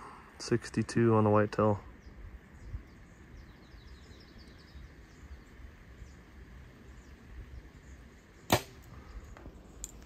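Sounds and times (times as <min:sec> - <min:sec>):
faint bird chirps: 0:01.4 - 0:10.0
wind rumble on microphone: 0:02.0 - 0:08.1.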